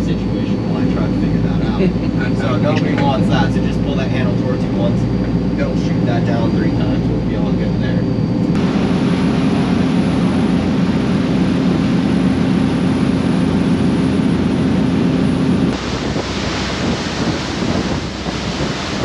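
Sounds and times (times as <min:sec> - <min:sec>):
boat engine droning: 0:00.0 - 0:19.0
water rushing from wake: 0:08.6 - 0:19.0
wind on microphone: 0:13.6 - 0:19.0.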